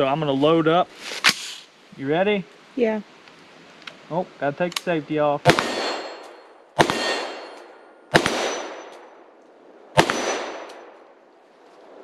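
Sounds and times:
rifle shots echoing: 5.4s - 9.2s, 9.9s - 11.1s
bullets ringing on steel target: 5.5s - 7.7s.

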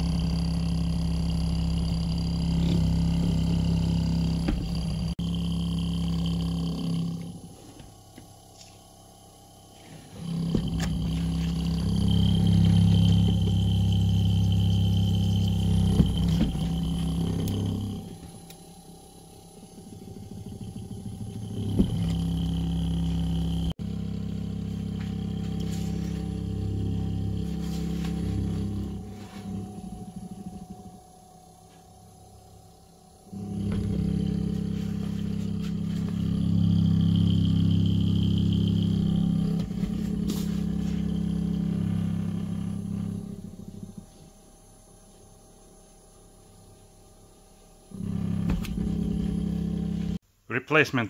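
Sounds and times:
compressor knock: 0.0s - 8.4s, 10.1s - 31.1s, 48.0s - 50.1s
fridge compressor hum: 0.0s - 50.2s.

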